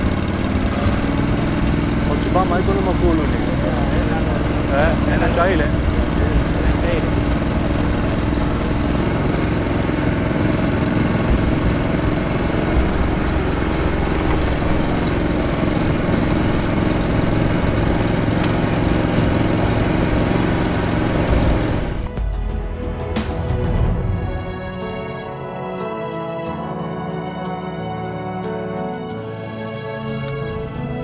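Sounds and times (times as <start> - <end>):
all-terrain vehicle engine: 0.0 - 22.1, 30.1 - 31.0.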